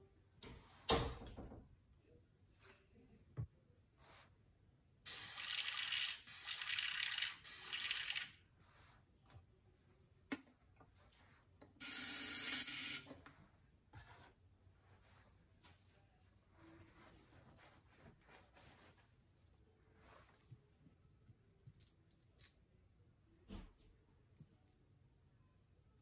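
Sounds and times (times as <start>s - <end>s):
airbrush hissing spray: 5.1s - 8.2s, 11.8s - 13.0s.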